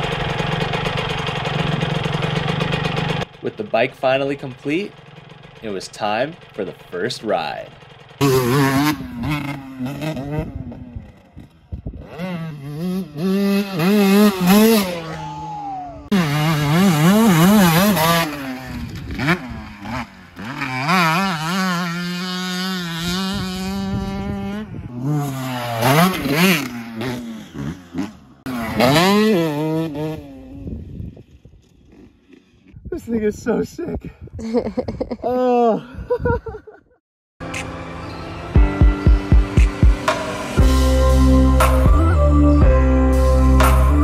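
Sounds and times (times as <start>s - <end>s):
dirt bike engine revving: 0.0s - 32.8s.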